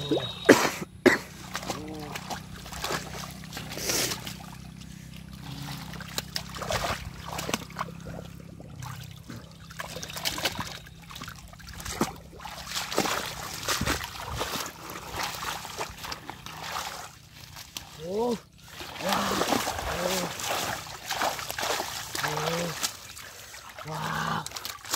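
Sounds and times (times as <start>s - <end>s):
water splashing: 0.0s - 24.9s
water streaming off fish: 18.6s - 24.9s.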